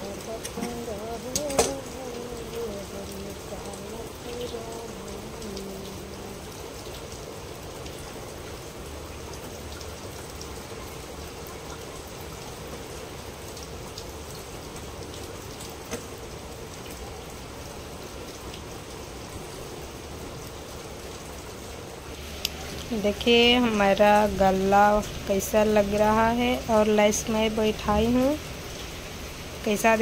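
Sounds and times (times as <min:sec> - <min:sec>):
heavy rain hissing: 0:00.0 - 0:30.0
faint ticks: 0:00.3 - 0:03.3.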